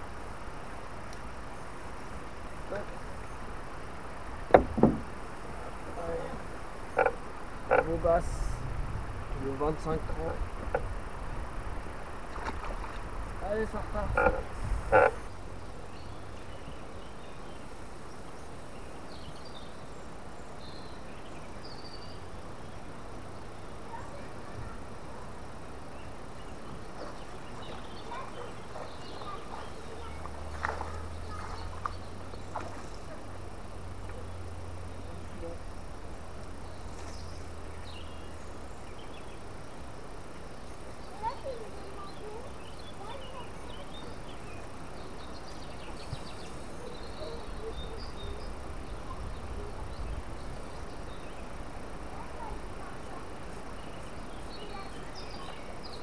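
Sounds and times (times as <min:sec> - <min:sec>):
faint high insect-like whine: 0:00.0 - 0:56.0
small birds chirping: 0:00.0 - 0:56.0
steady outdoor hiss: 0:00.0 - 0:56.0
sharp knocks: 0:04.5 - 0:05.1.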